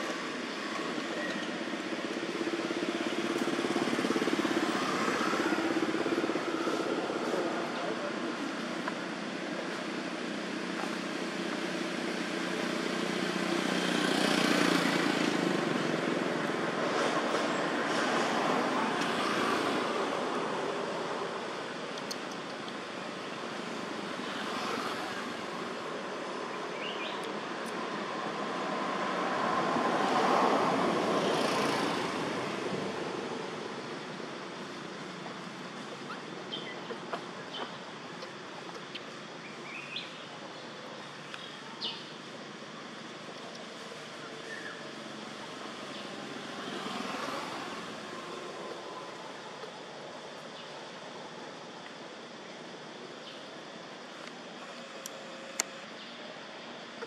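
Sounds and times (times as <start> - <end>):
distant traffic hum: 0.0 - 57.0
vehicle passing by: 13.0 - 21.0, 45.2 - 49.4.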